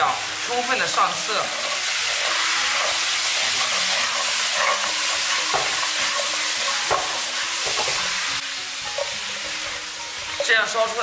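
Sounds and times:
meat sizzling in syrup: 0:00.0 - 0:11.0
spatula scraping and knocking pan: 0:01.5 - 0:08.2.

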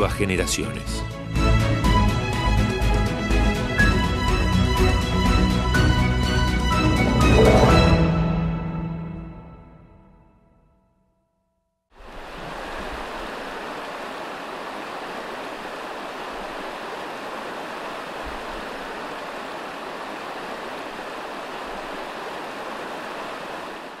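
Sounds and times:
river flowing: 0:06.8 - 0:08.2, 0:12.0 - 0:24.0.

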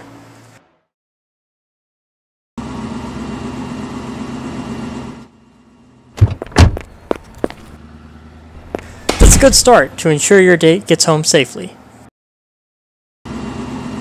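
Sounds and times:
heavy car door thuds: 0:06.2 - 0:07.7, 0:08.6 - 0:09.7
car engine running: 0:06.2 - 0:10.0.

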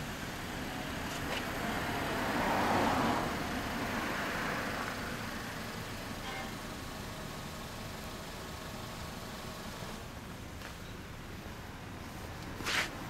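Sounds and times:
traffic hum: 0:00.0 - 0:13.0
vehicle passing by: 0:01.1 - 0:05.2.

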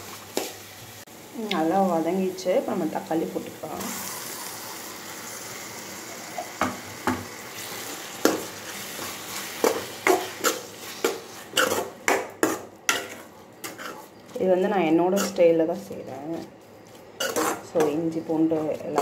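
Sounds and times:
vegetables sizzling in oil: 0:00.0 - 0:19.0
metal spatula scraping pan: 0:08.8 - 0:14.2, 0:15.0 - 0:15.5, 0:17.2 - 0:19.0.

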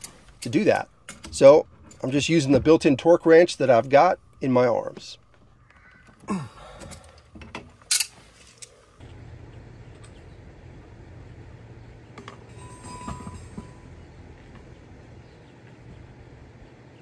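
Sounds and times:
low outdoor hum: 0:00.0 - 0:17.0.

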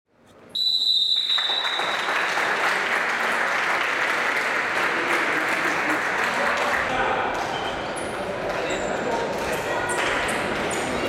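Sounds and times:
high whistle-like tone: 0:00.5 - 0:02.1
spectators applauding: 0:01.1 - 0:07.2.

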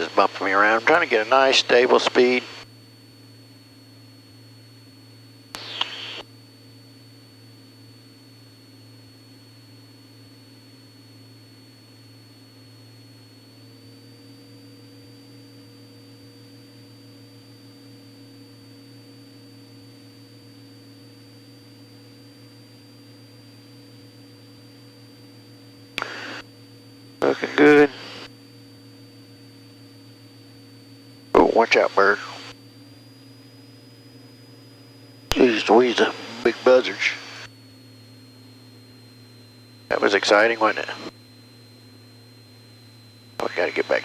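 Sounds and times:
airplane engine and propeller drone: 0:00.0 - 0:44.0
faint high whine: 0:00.0 - 0:44.0
short hiss burst with click: 0:05.6 - 0:06.0.

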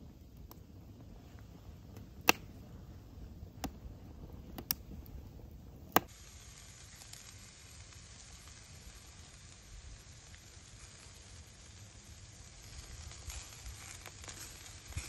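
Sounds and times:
wood fire crackling and popping: 0:00.0 - 0:15.0
food sizzling on grill: 0:06.0 - 0:15.0.

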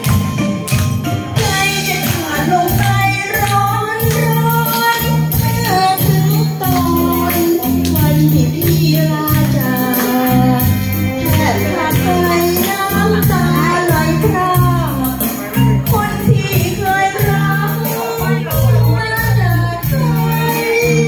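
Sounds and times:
backing track with bass line: 0:00.0 - 0:21.0
woman singing into a microphone: 0:01.4 - 0:21.0.

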